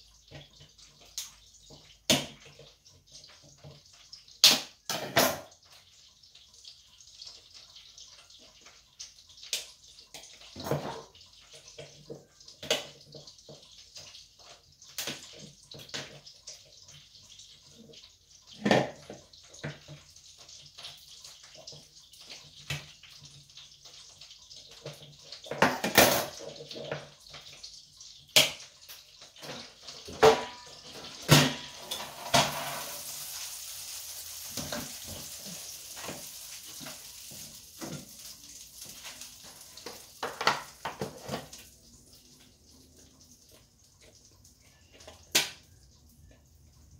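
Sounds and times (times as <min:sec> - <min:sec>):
dishes and utensils clinking: 0:10.3 - 0:11.2, 0:24.8 - 0:27.1, 0:29.3 - 0:33.2.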